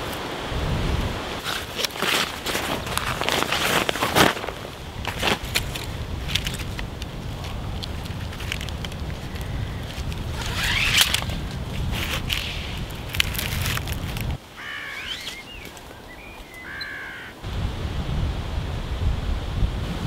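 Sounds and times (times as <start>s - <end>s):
wind buffeting microphone: 0.0s - 1.8s, 2.4s - 14.4s, 17.4s - 20.0s
strap rustling and clicking: 1.4s - 14.4s
crow cawing: 14.6s - 15.1s, 16.6s - 17.4s.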